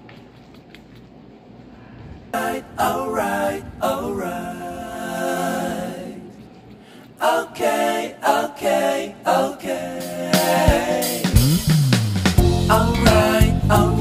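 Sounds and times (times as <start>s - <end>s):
unaccompanied singing: 2.3s - 11.6s, 12.4s - 14.0s.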